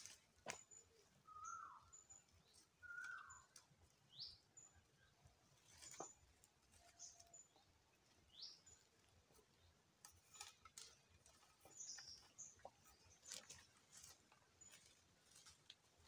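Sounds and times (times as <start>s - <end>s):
faint bird chirps: 0.5s - 9.7s.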